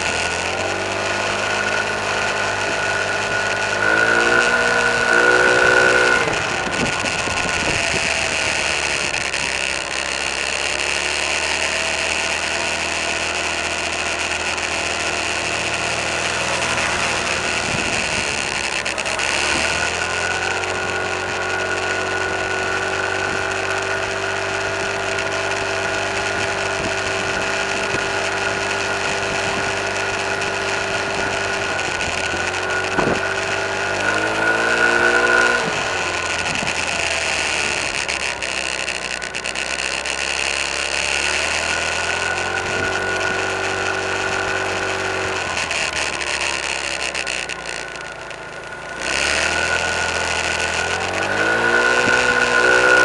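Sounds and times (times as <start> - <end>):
car engine running inside cabin: 0.0 - 53.0.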